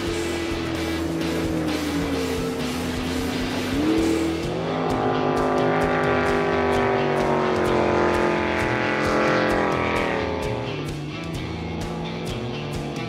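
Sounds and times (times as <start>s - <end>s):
background music with a beat: 0.0s - 13.0s
jet boat engine running hard: 5.8s - 10.5s.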